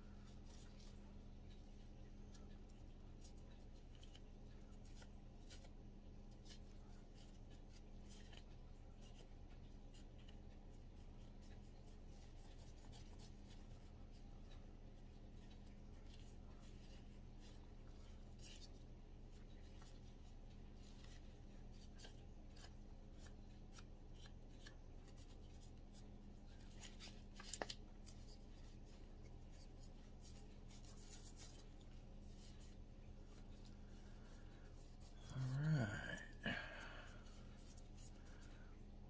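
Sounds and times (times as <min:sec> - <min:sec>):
steady low hum: 0:00.0 - 0:39.0
person speaking: 0:28.1 - 0:38.8.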